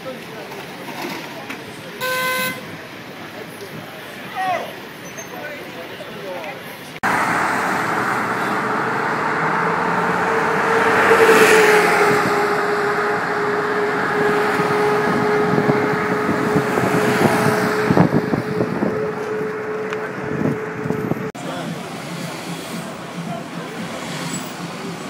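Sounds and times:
steady traffic hum: 0.0s - 25.0s
cars driving past: 7.0s - 25.0s.

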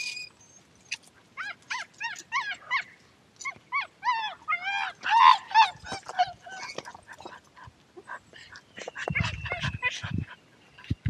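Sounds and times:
dog yipping and whining: 0.0s - 7.0s.

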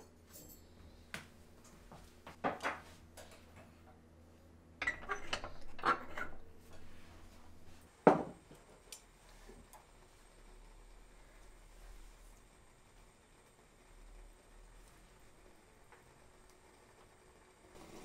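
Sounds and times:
pot set down on stove grate: 8.0s - 8.4s.

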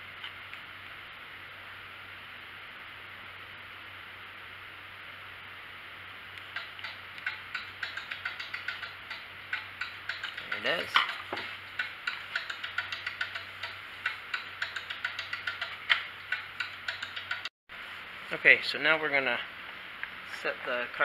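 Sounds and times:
screwdriver clicking and scraping: 6.4s - 17.5s.

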